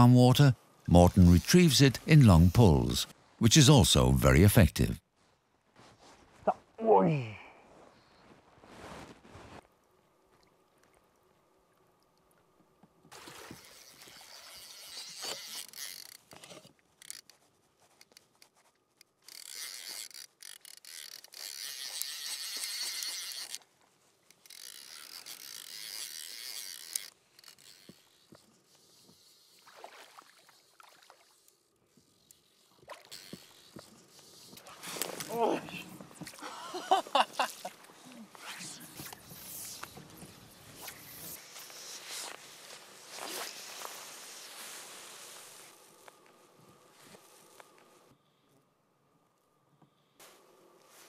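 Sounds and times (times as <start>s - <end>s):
fly reel ratchet buzzing: 13.5s - 17.4s, 19.2s - 23.6s, 24.3s - 29.5s, 32.2s - 35.2s.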